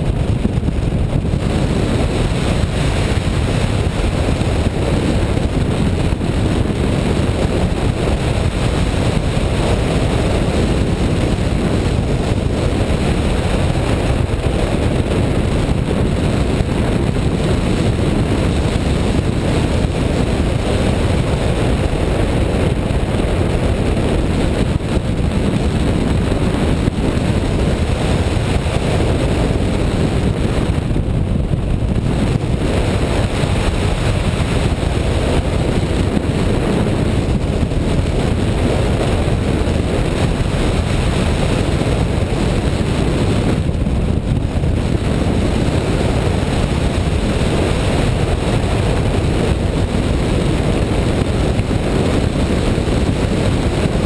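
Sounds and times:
wind rushing over microphone: 0.0 - 54.0.

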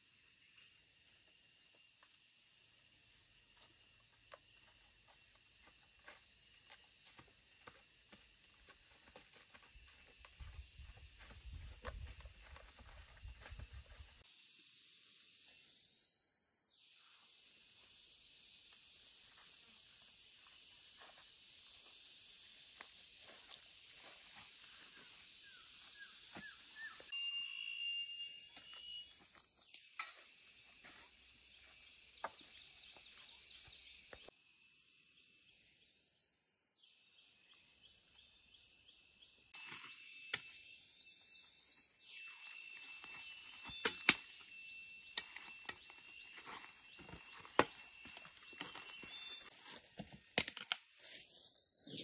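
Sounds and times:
sharp snaps and knocks: 43.8 - 44.3, 50.3 - 50.8.

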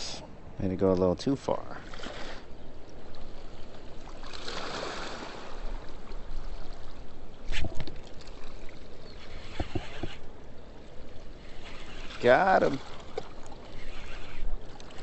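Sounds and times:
river water rushing: 4.0 - 7.0.

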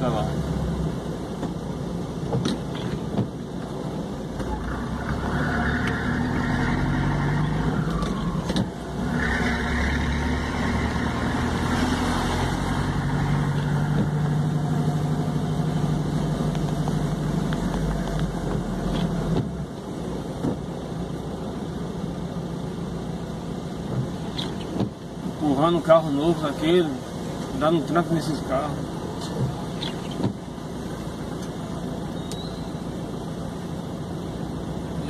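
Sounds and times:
vehicle engine from inside cabin: 0.0 - 25.8.

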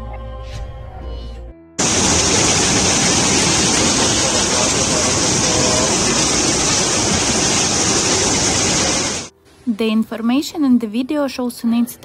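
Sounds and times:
floodwater rushing: 1.8 - 9.3.

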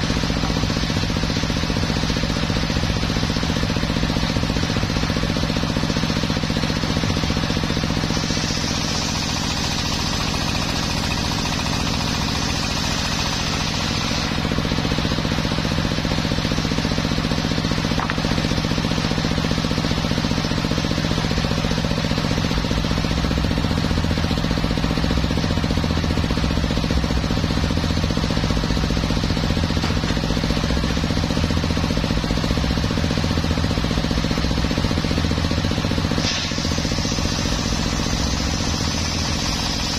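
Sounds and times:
saw blade cutting wood: 0.0 - 1.6, 7.5 - 14.7, 16.8 - 19.4, 36.1 - 39.9
circular saw humming: 6.8 - 19.9, 35.9 - 39.9.

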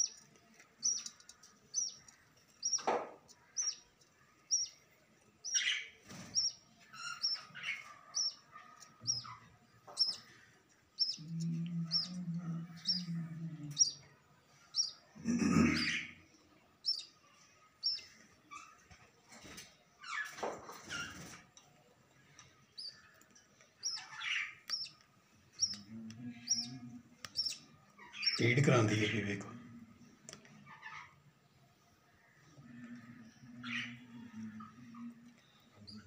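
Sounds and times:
budgerigars chirping: 0.8 - 3.8, 4.5 - 4.7, 5.4 - 10.4, 11.0 - 11.2, 11.9 - 12.2, 14.8 - 15.0, 16.8 - 17.1, 17.8 - 18.8, 23.8 - 26.7, 27.3 - 29.2.

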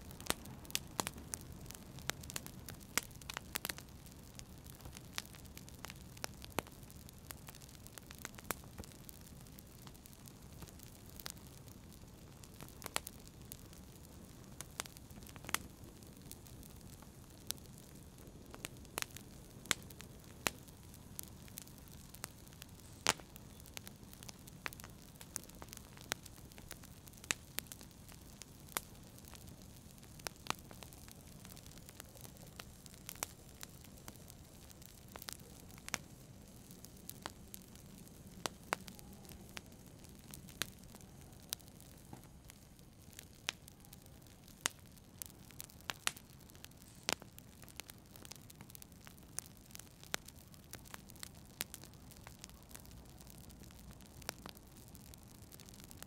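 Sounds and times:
low rumble of flames: 0.0 - 56.0
wood fire crackling and popping: 0.0 - 56.0.

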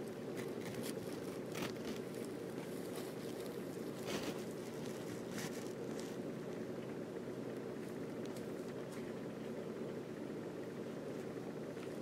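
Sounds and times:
steady low hum: 0.0 - 12.0
kitten scuffling on a rug: 0.4 - 6.2.

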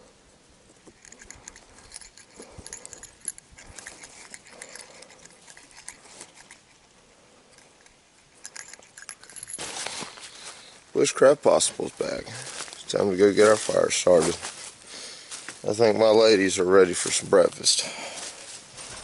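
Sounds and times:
cord rustling: 0.7 - 6.9, 7.5 - 10.8.

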